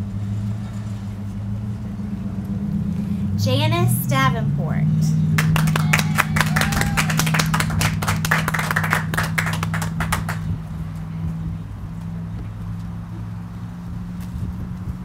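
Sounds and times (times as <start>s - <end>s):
steady low hum: 0.0s - 15.0s
small audience clapping: 5.3s - 10.6s.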